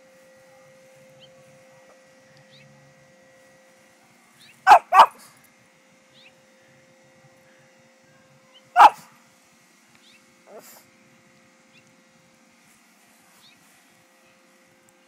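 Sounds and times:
small dog barking: 0:04.6 - 0:05.3, 0:08.6 - 0:09.1, 0:10.5 - 0:10.8.

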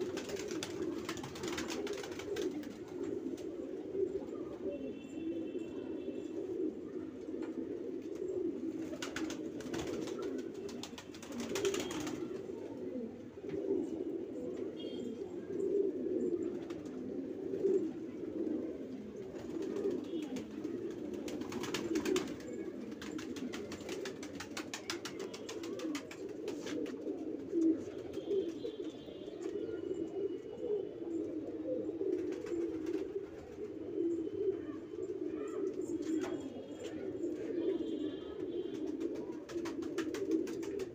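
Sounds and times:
pigeons cooing: 0:00.0 - 0:40.9.

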